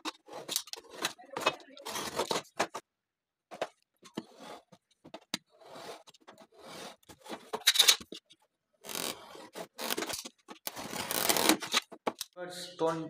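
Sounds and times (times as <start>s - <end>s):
utility knife scraping along ruler: 0.0s - 2.4s, 4.2s - 4.8s, 5.5s - 8.0s, 8.8s - 11.8s.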